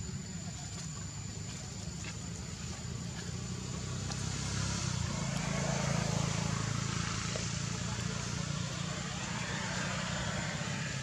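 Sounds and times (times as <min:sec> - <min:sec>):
engine droning: 0:00.0 - 0:11.0.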